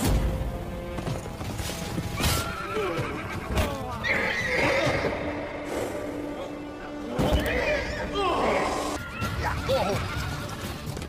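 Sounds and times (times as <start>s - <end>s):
background music: 0.0s - 11.0s
hoofbeats: 0.9s - 5.6s
horses neighing: 2.1s - 5.7s, 7.6s - 11.0s.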